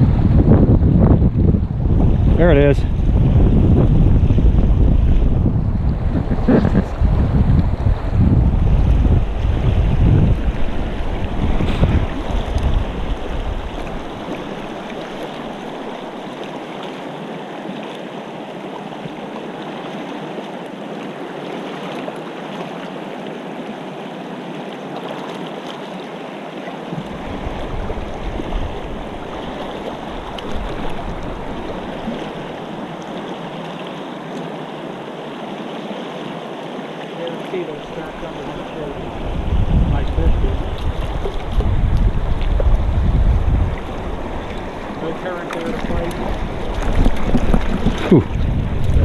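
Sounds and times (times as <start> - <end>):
wind buffeting microphone: 0.0 - 16.2, 27.0 - 32.9, 37.6 - 49.0
river rushing over rocks: 9.2 - 39.6.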